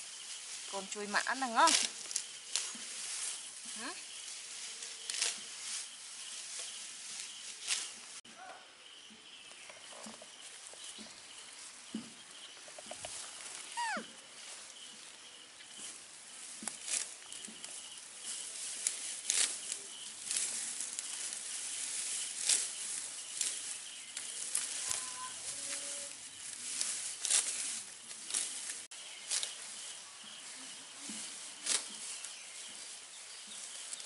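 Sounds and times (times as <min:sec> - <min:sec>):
grass rustling and crackling: 0:00.0 - 0:08.2, 0:09.1 - 0:34.0
insect trill: 0:09.7 - 0:16.0, 0:16.6 - 0:27.5
short squeal dropping in pitch: 0:13.8 - 0:14.1.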